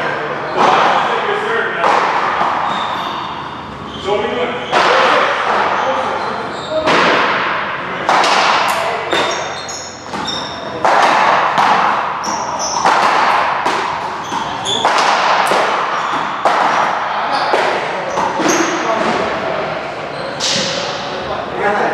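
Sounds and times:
hard thuds echoing in hall: 0.0 - 21.4
short high squeaks: 2.6 - 4.2, 9.1 - 10.7.

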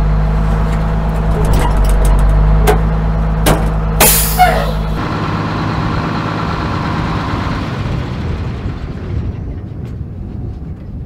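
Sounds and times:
fire engine idling: 3.9 - 9.6.

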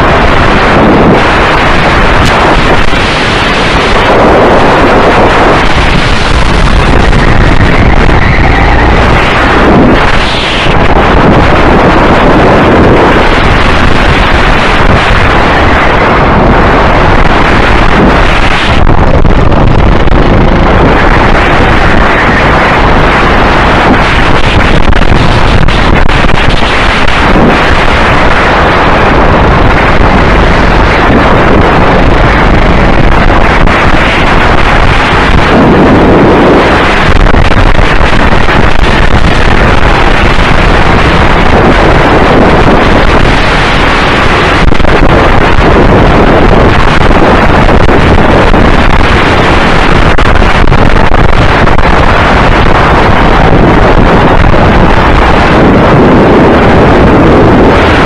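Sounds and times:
wind buffeting microphone: 0.0 - 58.0
go-kart engine running: 5.5 - 12.1.

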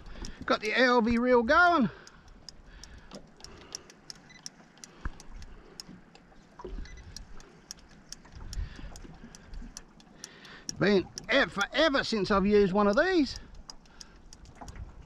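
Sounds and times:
fishing reel clicking: 0.1 - 5.9, 6.8 - 14.7.

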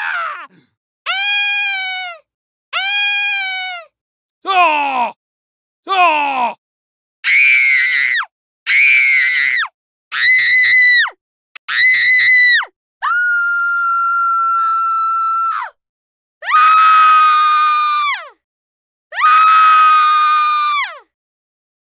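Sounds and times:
high-pitched human screams: 0.0 - 2.1, 16.4 - 18.2, 19.1 - 21.0.

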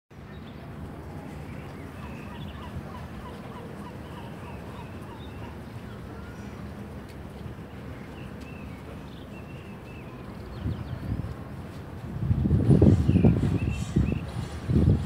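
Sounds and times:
birds chirping: 0.2 - 6.9.

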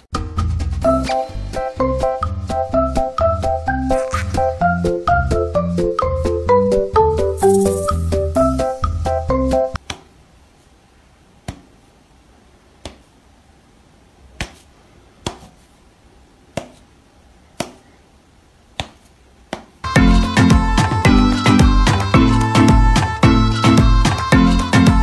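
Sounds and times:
background music: 0.1 - 9.8, 19.8 - 25.0.

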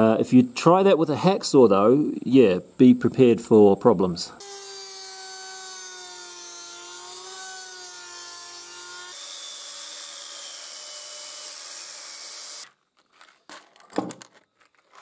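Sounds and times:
angle grinder grinding metal: 4.4 - 12.7
rotary tool disc whining: 4.4 - 12.8.

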